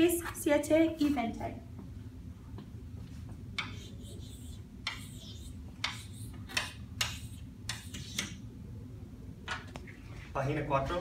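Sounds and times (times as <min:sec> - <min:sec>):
chalk tapping and scratching: 0:03.6 - 0:08.4.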